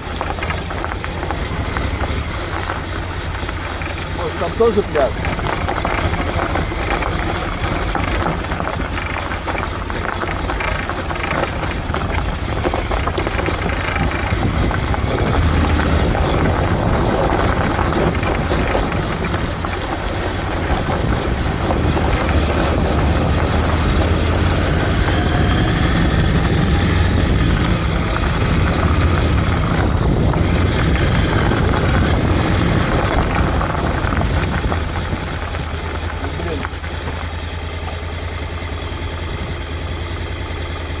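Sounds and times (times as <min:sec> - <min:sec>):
motorcycle engine running: 0:00.0 - 0:41.0
wind rushing on microphone: 0:11.7 - 0:36.5.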